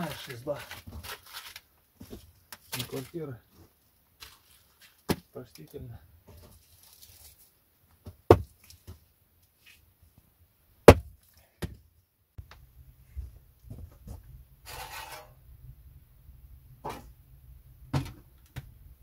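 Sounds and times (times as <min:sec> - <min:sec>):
rustling scrape: 0:00.0 - 0:05.1, 0:06.3 - 0:07.6, 0:13.8 - 0:15.4
hatchet chopping wood: 0:10.9 - 0:11.8
low background rumble: 0:15.4 - 0:19.0.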